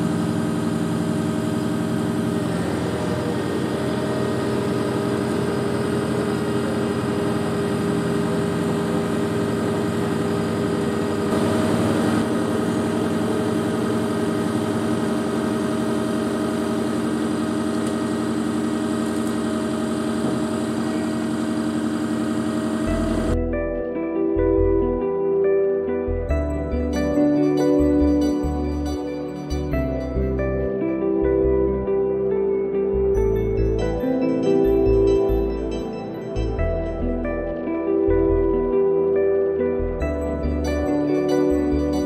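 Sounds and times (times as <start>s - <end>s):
heavy diesel engine idling: 0.0s - 23.5s.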